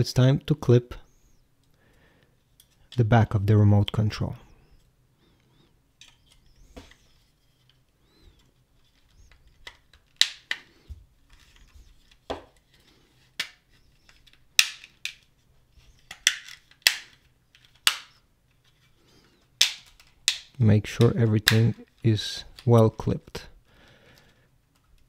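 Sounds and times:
plastic clips clicking into place: 0:08.4 - 0:10.7.

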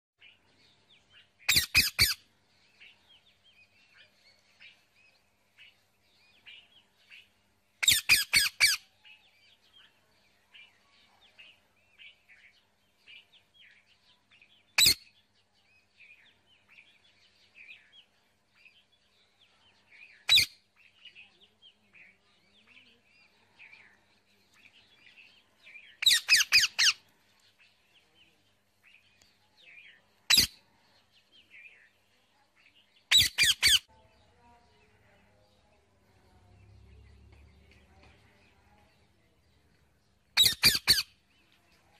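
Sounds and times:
faint birds chirping: 0:00.2 - 0:41.9
parakeets screeching: 0:01.5 - 0:02.2, 0:07.8 - 0:08.8, 0:26.0 - 0:27.0, 0:40.4 - 0:41.1.

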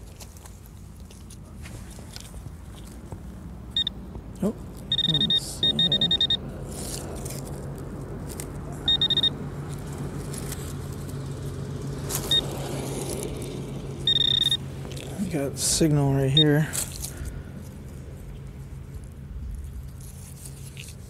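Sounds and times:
metal detector beeping: 0:03.8 - 0:04.0, 0:04.9 - 0:06.4, 0:08.8 - 0:09.4, 0:12.3 - 0:12.5, 0:14.1 - 0:14.6, 0:16.3 - 0:16.7.

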